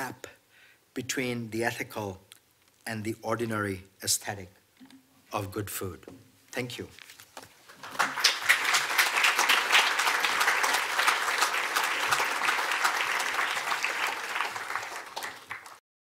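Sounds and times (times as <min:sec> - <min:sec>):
audience applauding: 0:07.7 - 0:15.8.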